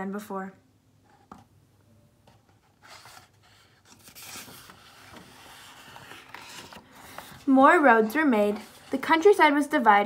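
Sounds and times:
book page rustling: 0:02.2 - 0:09.5.

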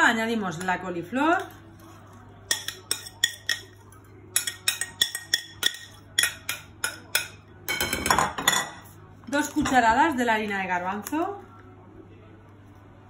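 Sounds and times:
metal spoon clinking against bowls: 0:02.4 - 0:09.8.

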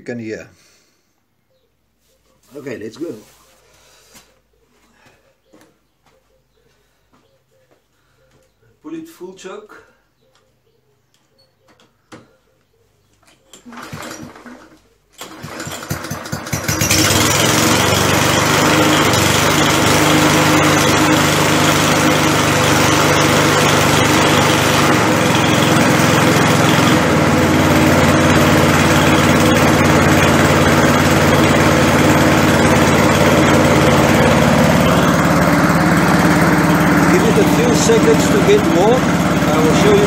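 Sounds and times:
lawn mower engine starting and running: 0:13.3 - 0:40.0.

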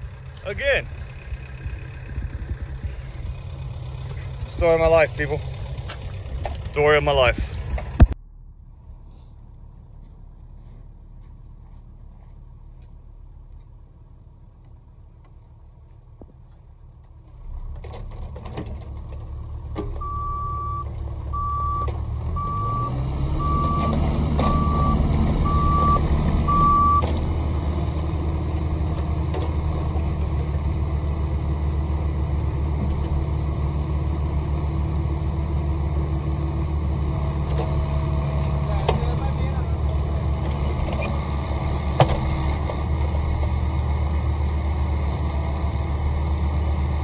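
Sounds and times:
excavator diesel engine revving: 0:00.0 - 0:08.1, 0:17.4 - 0:47.0
warning alarm beeping: 0:20.0 - 0:27.1.

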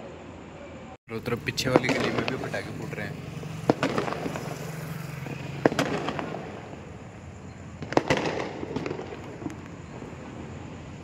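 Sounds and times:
fireworks sharp bangs: 0:01.3 - 0:11.0
firecracker pops: 0:01.6 - 0:02.9, 0:03.6 - 0:06.9, 0:07.8 - 0:09.9.

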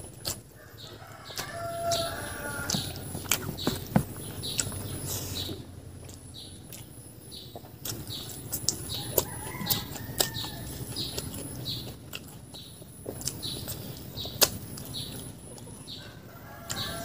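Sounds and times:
wet chewing: 0:00.0 - 0:17.0
mouth clicks and smacks: 0:02.7 - 0:12.4, 0:13.1 - 0:15.7.

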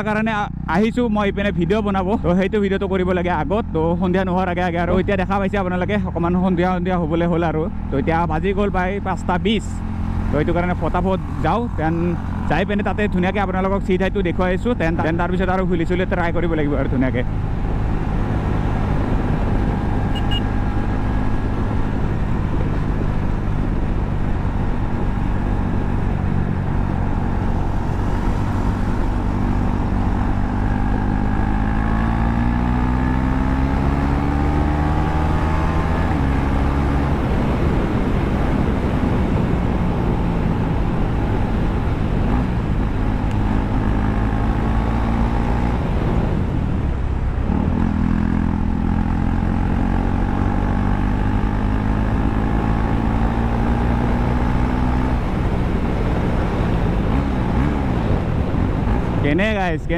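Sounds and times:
motorcycle engine revving: 0:00.0 - 0:59.9
wind noise: 0:16.2 - 0:48.2, 0:49.8 - 0:59.9.

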